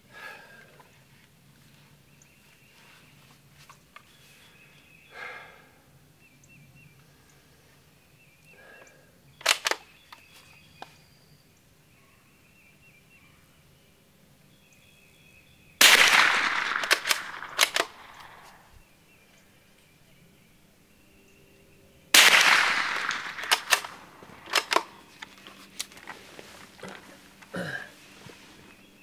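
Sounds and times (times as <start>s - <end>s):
faint bird chirps: 1.7s - 15.8s
rifle bolt clicking: 9.4s - 10.2s, 15.8s - 18.6s, 22.2s - 25.9s
rifle shot echoing: 15.8s - 18.8s, 22.1s - 25.2s.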